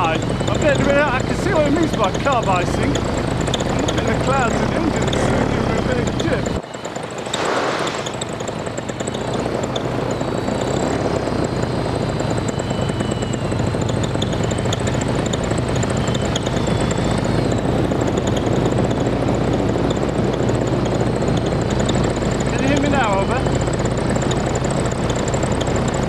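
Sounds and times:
light aircraft engine droning: 0:00.0 - 0:26.0
air rushing: 0:07.3 - 0:08.2.

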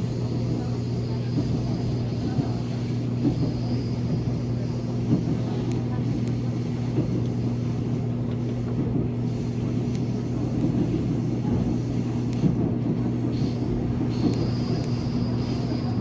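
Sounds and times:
electric train rumbling on track: 0:00.0 - 0:16.0
faint clicks: 0:05.1 - 0:08.7, 0:09.6 - 0:16.0.

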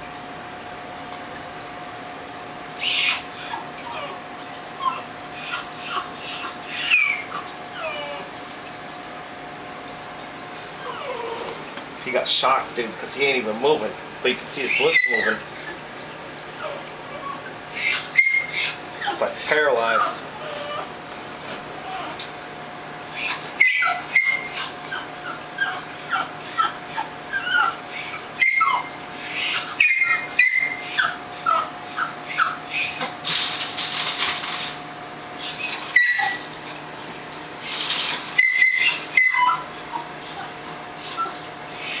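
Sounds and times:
high-pitched animal squeaks and chirps: 0:02.8 - 0:08.2, 0:14.5 - 0:20.8, 0:23.2 - 0:33.1, 0:35.4 - 0:42.0.

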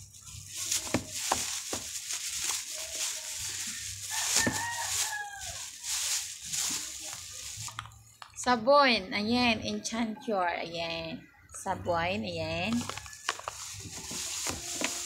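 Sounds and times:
plastic bags crinkling: 0:00.0 - 0:08.3, 0:12.7 - 0:15.0.

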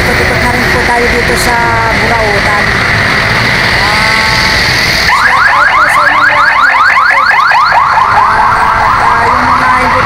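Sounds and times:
electronic siren yelping: 0:03.7 - 0:10.0.

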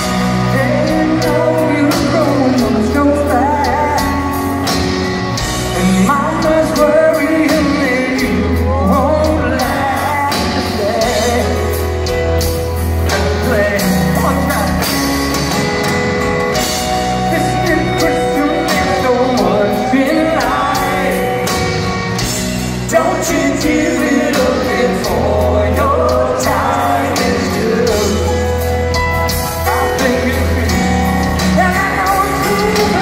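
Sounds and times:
live rock band playing: 0:00.0 - 0:33.0
person singing lead vocal: 0:00.0 - 0:33.0.

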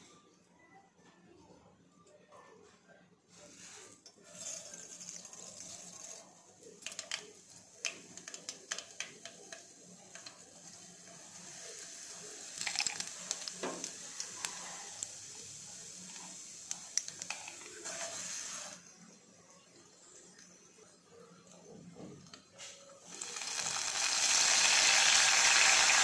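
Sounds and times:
seeds sizzling in hot oil: 0:03.6 - 0:18.9, 0:22.6 - 0:26.0
seeds popping and crackling: 0:12.1 - 0:15.2, 0:23.1 - 0:26.0.

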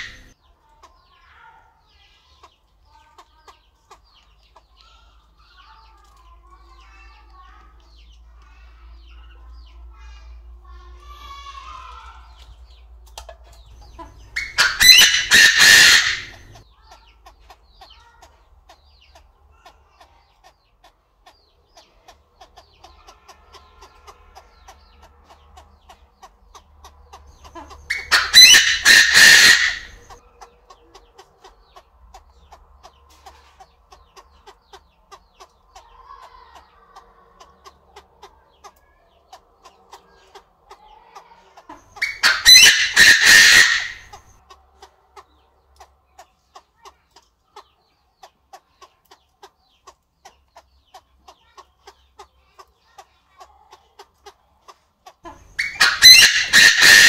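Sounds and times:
bird calling: 0:00.0 - 0:00.4, 0:13.7 - 0:17.1, 0:27.2 - 0:31.6, 0:40.2 - 0:44.4, 0:55.3 - 0:57.0.

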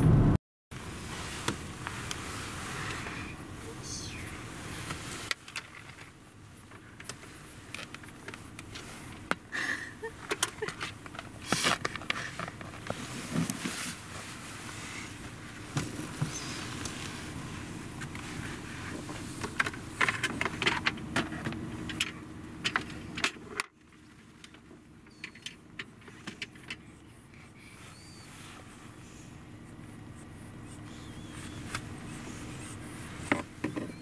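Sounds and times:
car cabin hum: 0:00.0 - 0:34.0.

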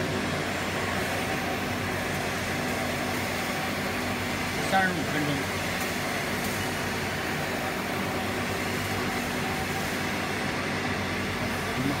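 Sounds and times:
low machine hum: 0:00.0 - 0:12.0.

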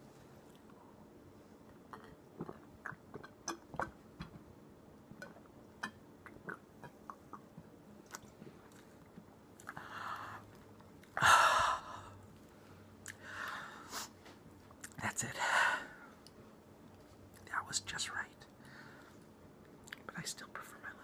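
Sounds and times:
man gulping while drinking: 0:01.7 - 0:04.4, 0:05.2 - 0:08.3.

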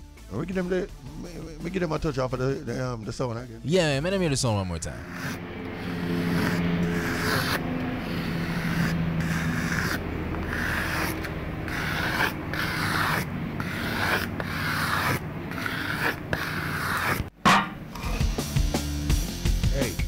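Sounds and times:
gritty scraping strokes: 0:04.5 - 0:18.5.

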